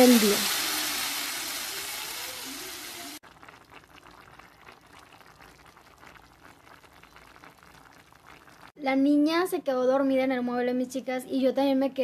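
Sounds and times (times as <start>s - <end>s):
broth sizzling in pot: 0.0s - 8.8s
soup bubbling: 0.0s - 8.8s.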